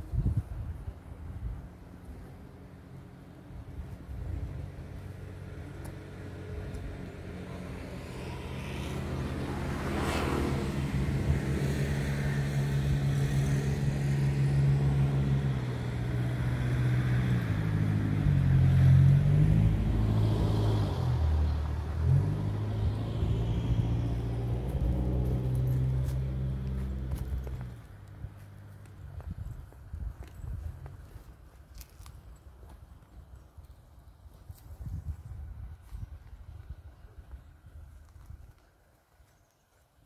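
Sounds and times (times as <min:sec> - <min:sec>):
vehicle engine running: 0:21.5 - 0:29.2.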